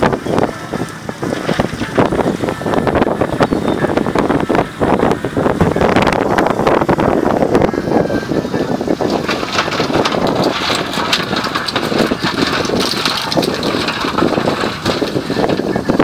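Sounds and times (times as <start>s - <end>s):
boat engine running: 0.0s - 16.0s
wind buffeting microphone: 0.0s - 16.0s
pots clattering on metal tray: 9.0s - 16.0s.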